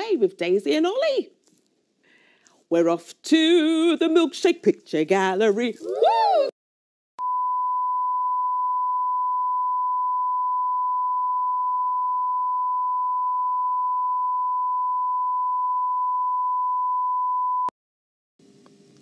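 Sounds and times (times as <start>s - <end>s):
sine-wave test tone: 7.2s - 17.7s.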